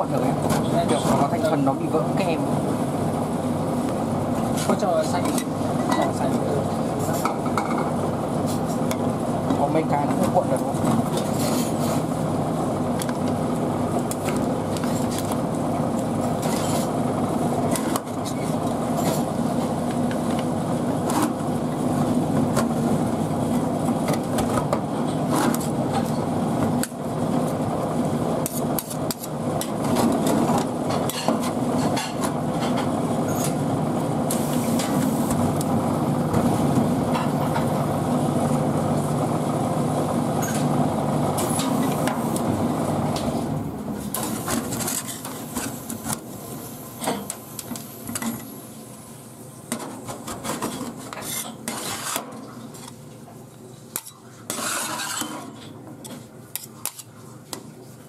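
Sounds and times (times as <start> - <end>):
steady low hum: 0.0 - 57.9
metal spatula scraping on pan: 54.5 - 55.5.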